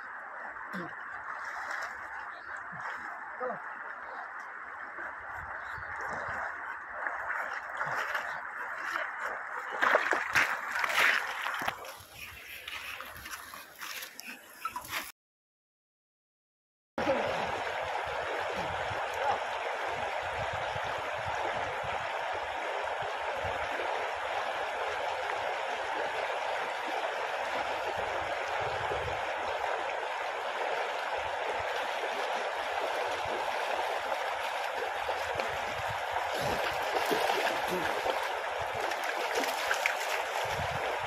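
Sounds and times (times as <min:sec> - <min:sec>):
river rushing over stones: 0:21.0 - 0:41.0.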